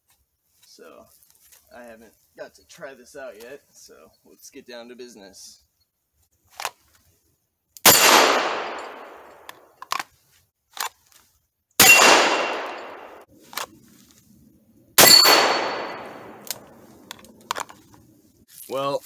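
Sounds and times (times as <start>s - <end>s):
revolver gunshots: 7.8s - 9.6s, 11.8s - 13.3s, 15.0s - 17.0s.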